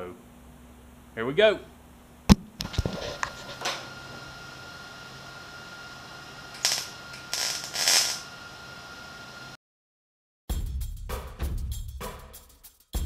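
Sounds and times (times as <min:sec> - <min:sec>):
steady hum: 0:00.0 - 0:09.6
welding arc crackle: 0:02.6 - 0:09.1.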